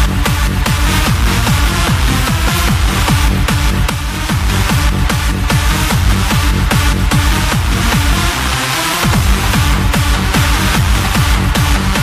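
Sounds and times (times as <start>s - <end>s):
electronic dance music: 0.0s - 12.0s.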